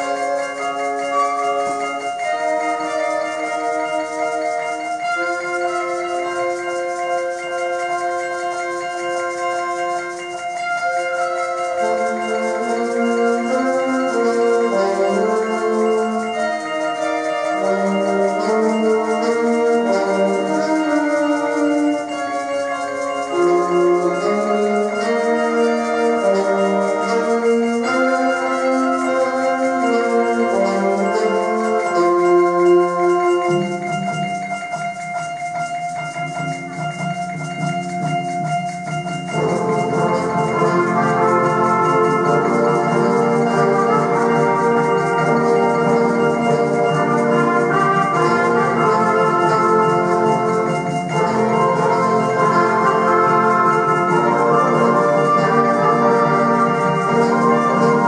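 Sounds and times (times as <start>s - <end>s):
symphonic band playing: 0.0s - 58.0s.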